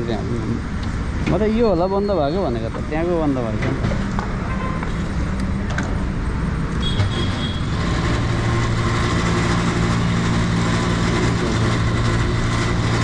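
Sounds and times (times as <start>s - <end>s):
street traffic: 0.0s - 13.0s
fuel pump motor humming: 5.1s - 13.0s.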